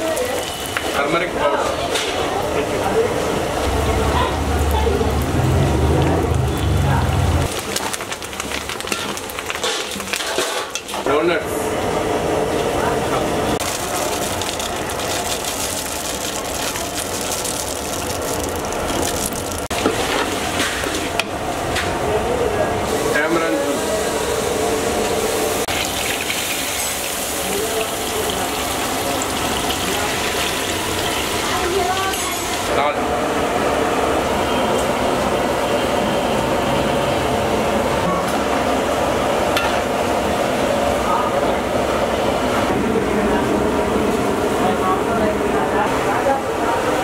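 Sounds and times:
peanuts sizzling in oil: 13.6s - 21.0s, 25.6s - 32.6s
loud steady roaring noise: 32.3s - 47.0s.

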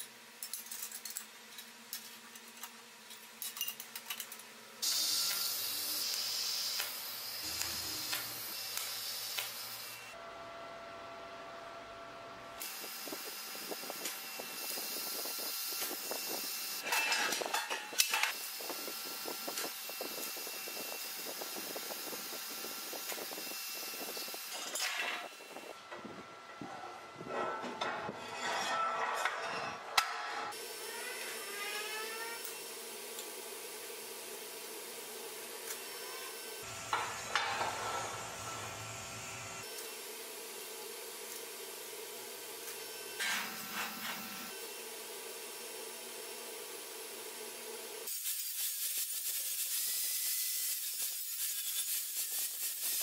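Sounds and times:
welding arc hissing and crackling: 4.8s - 10.2s, 12.6s - 25.7s, 30.5s - 53.0s.

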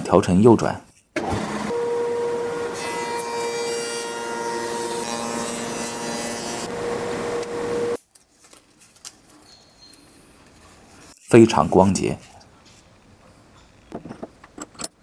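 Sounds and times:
spindle moulder whining: 5.8s - 8.0s.

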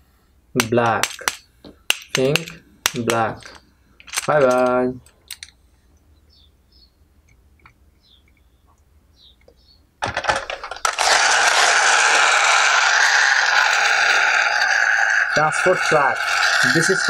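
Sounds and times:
plastic toys clicking: 0.6s - 5.5s, 10.0s - 17.0s
toy truck clattering: 0.6s - 5.5s, 10.0s - 17.0s
toy wheels whirring rattle: 10.0s - 17.0s.

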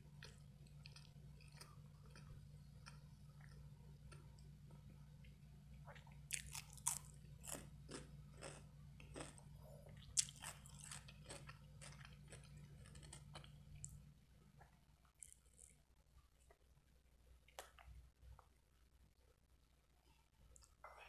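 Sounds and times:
crisp chewing of cucumber: 5.9s - 14.0s, 15.2s - 15.8s.

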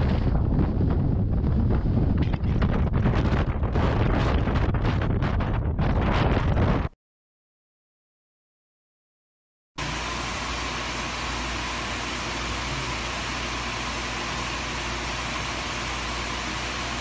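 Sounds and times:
low hum: 9.8s - 17.0s.

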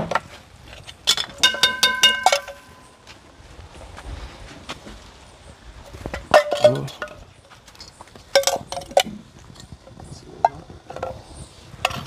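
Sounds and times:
metal utensil clinking on pot: 1.1s - 2.9s.

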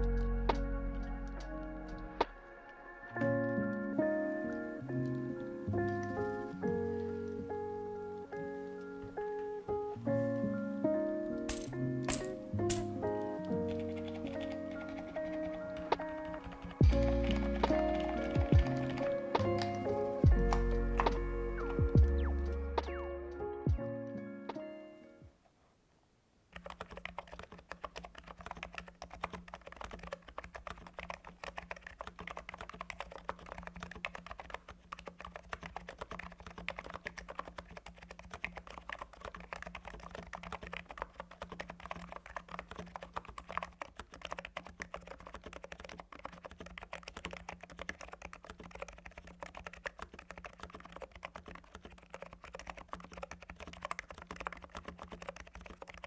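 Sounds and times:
keyboard typing: 0.0s - 9.7s, 11.3s - 23.0s, 26.5s - 56.0s.

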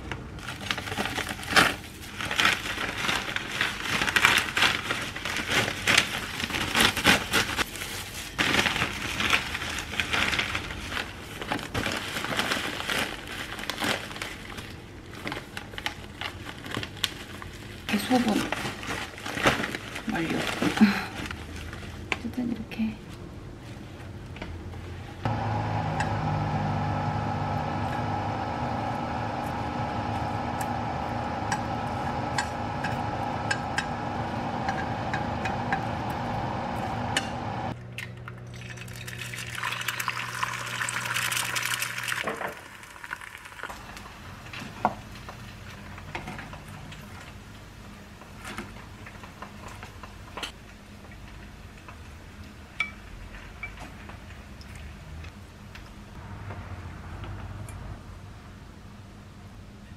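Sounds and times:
egg sizzling in frying pan: 38.7s - 44.1s.

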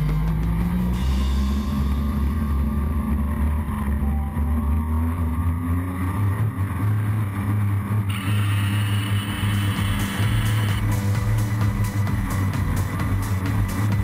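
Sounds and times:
quadcopter propellers buzzing: 7.4s - 11.1s.

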